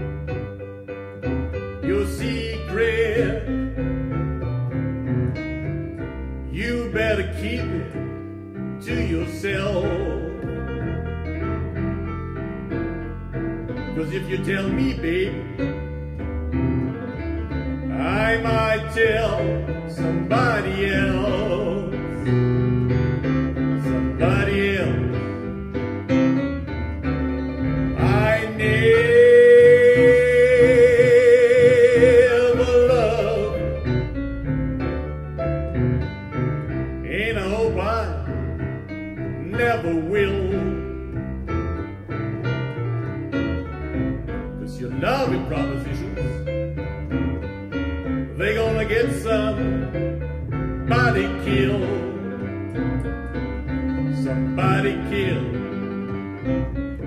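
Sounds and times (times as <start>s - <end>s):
boogie-woogie piano: 0.0s - 57.0s
double bass: 0.0s - 57.0s
man singing: 1.5s - 3.9s, 6.5s - 8.2s, 8.8s - 11.0s, 13.8s - 15.8s, 17.8s - 22.4s, 23.8s - 25.6s, 27.9s - 34.1s, 37.0s - 38.4s, 39.4s - 41.2s, 44.4s - 46.5s, 48.2s - 50.0s, 50.8s - 52.6s, 53.9s - 56.0s.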